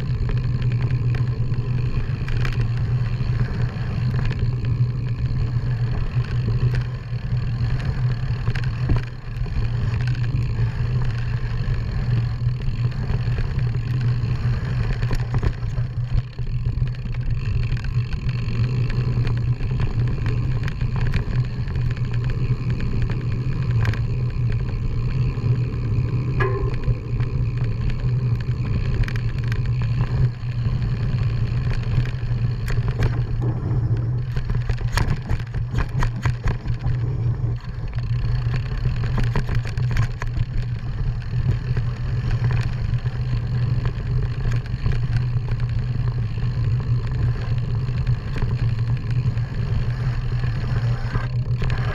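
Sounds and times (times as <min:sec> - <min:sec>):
engine drone: 0:00.0 - 0:51.9
rattles and knocks: 0:26.3 - 0:30.0.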